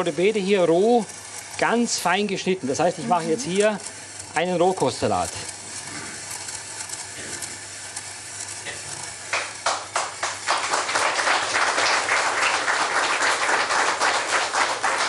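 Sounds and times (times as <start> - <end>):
audience applauding: 9.3 - 15.0.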